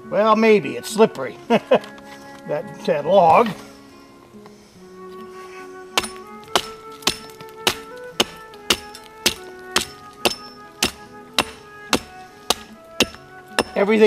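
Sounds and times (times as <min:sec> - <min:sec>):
background music: 0:00.0 - 0:14.0
hatchet chopping log: 0:06.0 - 0:14.0.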